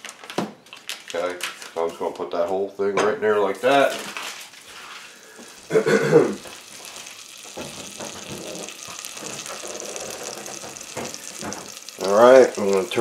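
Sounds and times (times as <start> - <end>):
butter sizzling in a saucepan: 3.6 - 13.0.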